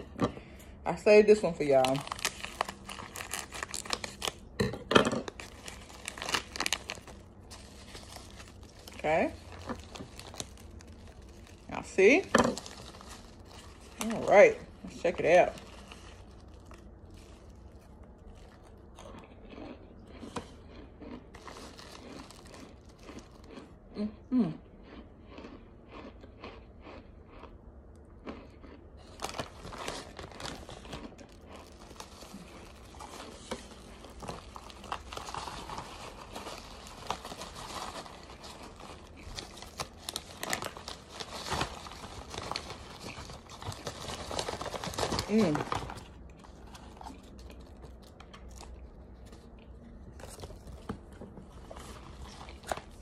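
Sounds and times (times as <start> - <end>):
plastic bag crinkling: 1.4 - 19.1, 21.3 - 23.6, 29.0 - 49.5
starch chunks crunching: 1.4 - 23.9, 24.8 - 53.0.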